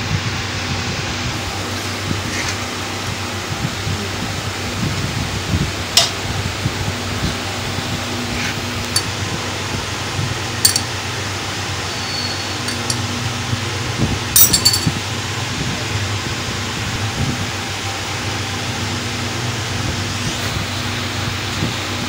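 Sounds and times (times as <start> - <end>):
steady low hum: 0.0 - 22.0
metal spoon clinking on pot: 10.6 - 10.9, 12.6 - 13.0, 14.4 - 14.9.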